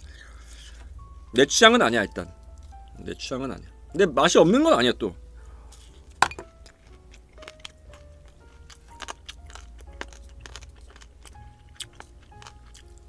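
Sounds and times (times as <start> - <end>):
quiet background music: 0.0 - 13.0
chewing: 6.6 - 13.0.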